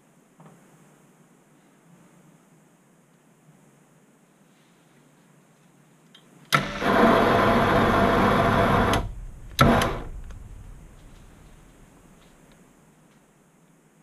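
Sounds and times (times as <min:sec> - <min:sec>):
switch click: 0:06.5 - 0:11.8
lathe motor running: 0:06.6 - 0:11.9.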